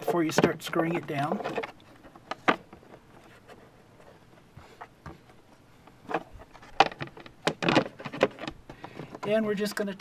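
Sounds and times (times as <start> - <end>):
plastic cover knocking against housing: 6.8 - 9.3.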